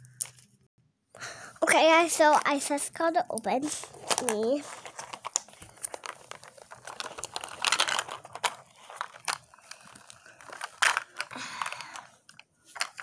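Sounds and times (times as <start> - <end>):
paper wrappers crinkling: 3.6 - 13.0.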